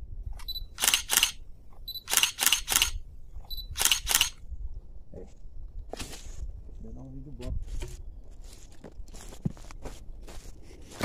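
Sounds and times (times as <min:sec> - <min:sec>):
camera shutter clicks: 0:00.4 - 0:01.4, 0:02.0 - 0:03.0, 0:03.6 - 0:04.4
short high camera beep: 0:00.4 - 0:04.4.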